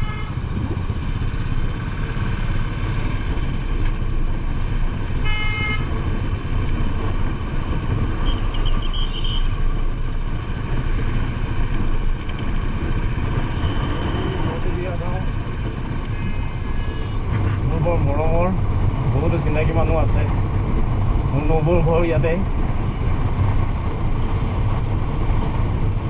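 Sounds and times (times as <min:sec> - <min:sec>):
vehicle horn: 0:00.0 - 0:00.4, 0:05.2 - 0:05.9, 0:08.2 - 0:09.5, 0:13.6 - 0:14.6, 0:16.1 - 0:17.3
motorcycle engine running: 0:00.0 - 0:19.1
wind rumbling on microphone: 0:00.0 - 0:26.0.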